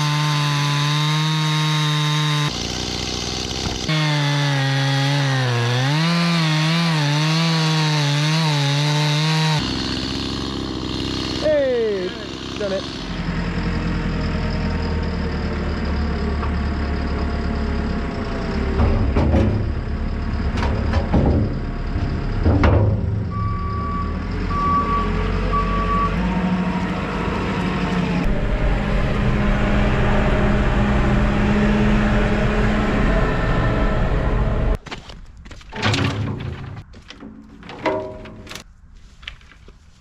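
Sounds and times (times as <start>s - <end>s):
diesel engine running: 9.2s - 34.8s
sharp clunks: 20.5s - 23.3s, 34.8s - 38.6s
short beeps: 23.3s - 26.1s.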